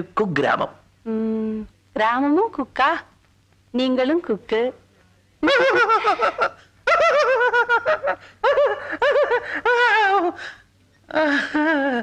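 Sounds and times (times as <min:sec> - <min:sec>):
man laughing loudly: 0:05.4 - 0:10.2.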